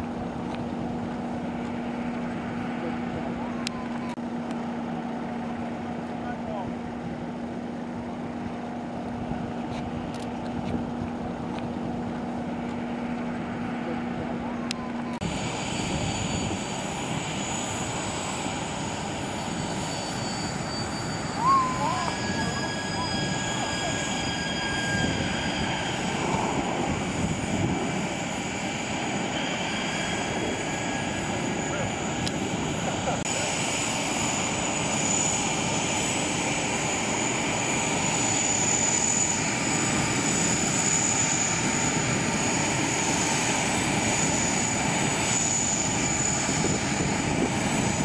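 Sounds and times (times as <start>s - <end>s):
aircraft turbine rumble: 0.0s - 48.0s
tow tractor engine drone: 0.0s - 48.0s
high whining tones: 14.5s - 48.0s.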